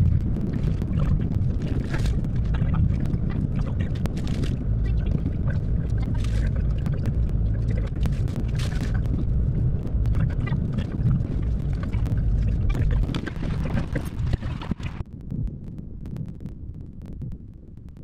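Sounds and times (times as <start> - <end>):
car road and engine rumble: 0.0 - 15.0.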